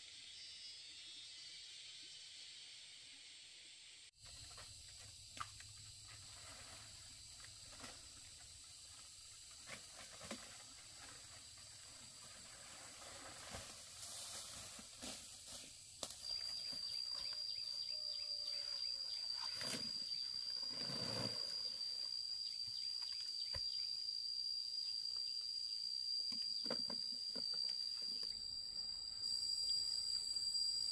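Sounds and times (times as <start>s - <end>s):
thin high whine: 12.7s - 30.9s.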